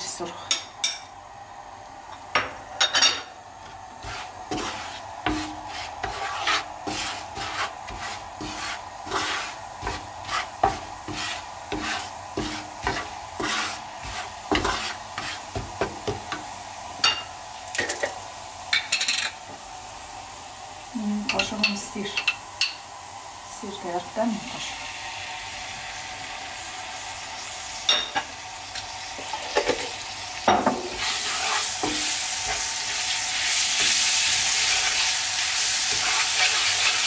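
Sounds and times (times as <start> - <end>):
faint oil sizzle: 3.3 - 37.0
wooden spatula scraping pan: 3.6 - 16.4, 30.8 - 37.0.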